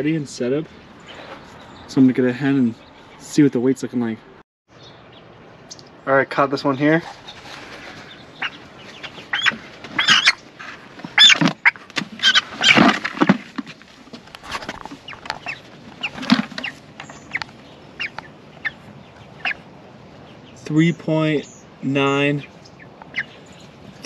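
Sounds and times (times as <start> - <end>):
chickens clucking and squawking: 6.8 - 13.7, 14.3 - 19.7, 22.8 - 24.0.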